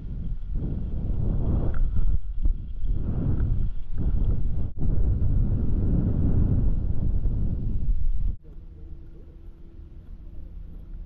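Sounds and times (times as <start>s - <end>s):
wind buffeting microphone: 0.0s - 8.4s.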